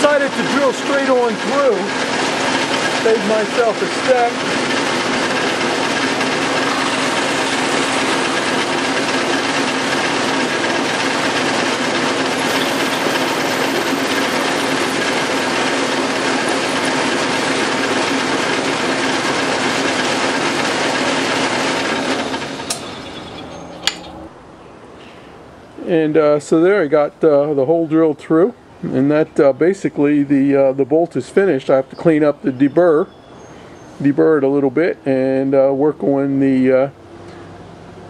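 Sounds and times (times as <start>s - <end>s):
milling machine spindle running: 0.0s - 24.3s
drill cutting metal: 0.3s - 23.4s.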